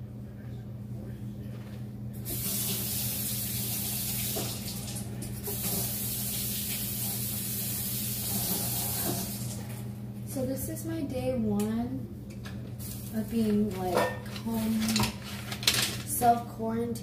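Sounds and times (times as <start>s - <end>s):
faucet running water into sink: 2.3s - 9.7s.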